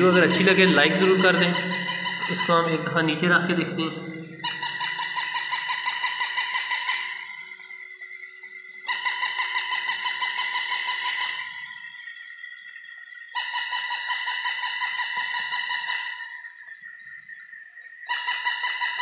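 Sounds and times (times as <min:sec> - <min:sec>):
toy electronic bark: 0:00.0 - 0:02.9, 0:04.3 - 0:07.6, 0:08.8 - 0:12.0, 0:13.3 - 0:16.5, 0:18.1 - 0:19.0
toy walking mechanism whirring: 0:08.8 - 0:12.1.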